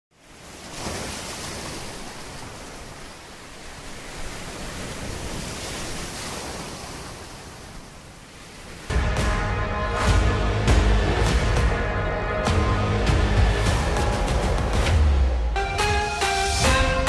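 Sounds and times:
ocean surf breaking on beach: 0:00.2 - 0:09.0.

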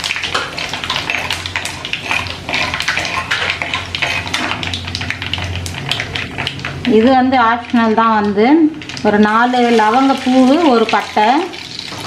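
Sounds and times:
seeds crackling in hot oil: 0:00.0 - 0:12.0
spoon scraping pot: 0:00.6 - 0:04.6.

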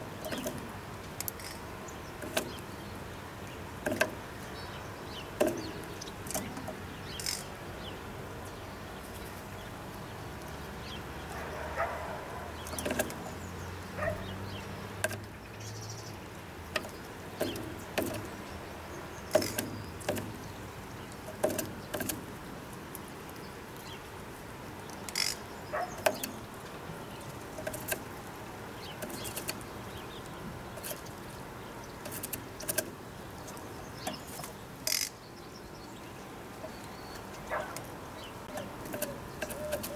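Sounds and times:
bird pecking on wood: 0:00.1 - 0:02.8, 0:03.8 - 0:04.4, 0:05.3 - 0:07.5, 0:12.5 - 0:13.4, 0:14.9 - 0:15.3, 0:16.6 - 0:18.5, 0:19.1 - 0:23.1, 0:25.0 - 0:35.1, 0:36.7 - 0:39.9.

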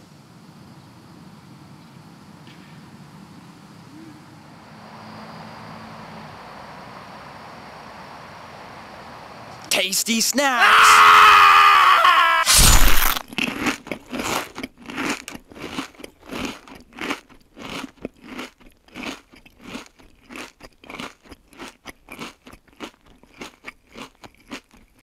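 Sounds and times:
chewing crunchy snacks: 0:12.5 - 0:25.0.

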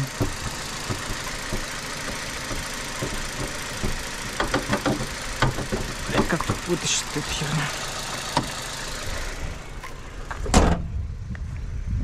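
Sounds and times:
hood prop rod clicks and knocks: 0:00.0 - 0:06.8
car engine idling quietly: 0:00.0 - 0:11.9.

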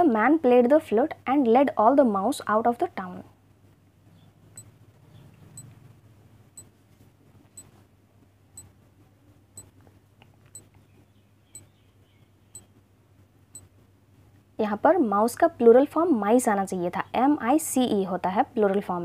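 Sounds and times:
faint low hum: 0:00.0 - 0:19.0
clock ticking: 0:05.5 - 0:05.7.

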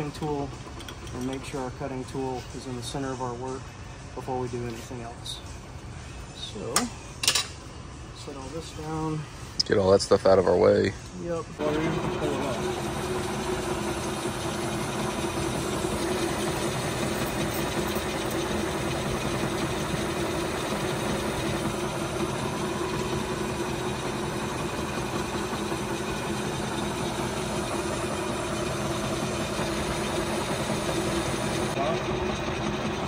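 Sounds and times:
lathe motor humming: 0:11.6 - 0:33.0.

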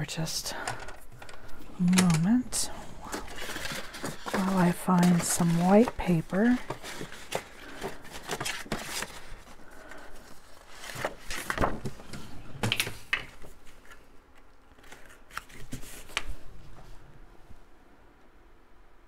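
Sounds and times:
paper rustling and sliding: 0:02.8 - 0:14.1, 0:14.8 - 0:17.0.

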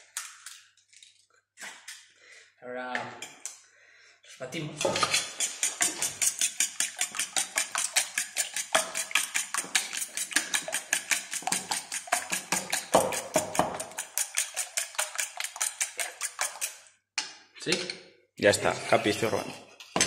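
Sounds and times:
fork beating eggs in metal bowl: 0:04.6 - 0:17.0, 0:18.6 - 0:20.0.

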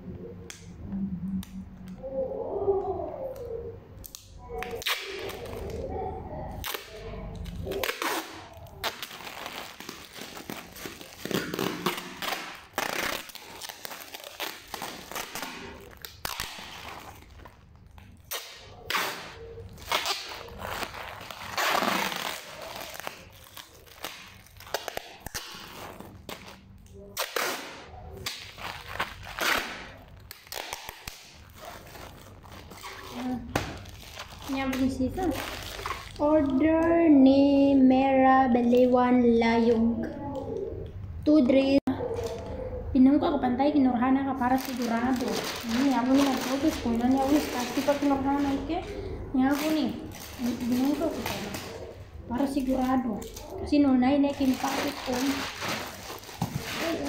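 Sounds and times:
plastic crinkling: 0:03.4 - 0:37.0, 0:44.3 - 0:57.0
packing tape ripping off roll: 0:04.0 - 0:05.8, 0:06.6 - 0:36.6, 0:44.5 - 0:48.7, 0:49.5 - 0:53.5, 0:54.3 - 0:57.0.

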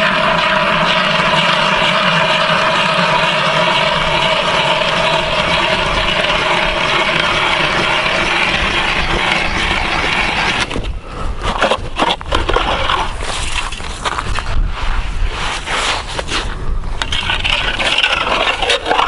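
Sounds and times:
ice auger grinding through ice: 0:00.0 - 0:19.0
scraping and crunching ice chips: 0:11.5 - 0:14.5, 0:15.5 - 0:19.0.

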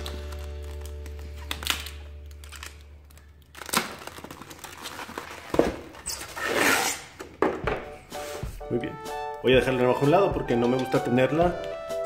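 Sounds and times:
background music: 0:00.0 - 0:04.2, 0:06.6 - 0:12.0
plastic wrapping crinkling: 0:00.0 - 0:06.8.

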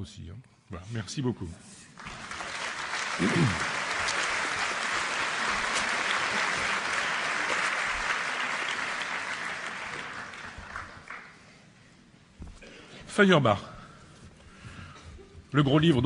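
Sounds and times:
audience applauding: 0:02.0 - 0:11.5.

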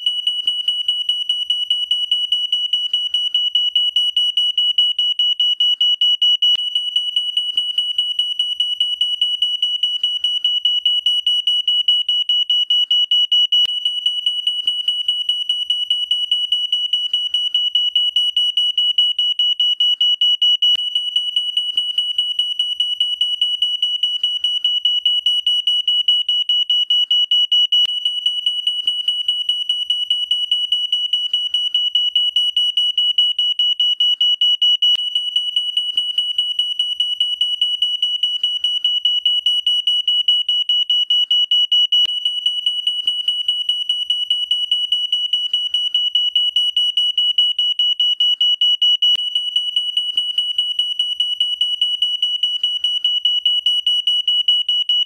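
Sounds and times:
smoke alarm beeping: 0:00.0 - 0:55.0.

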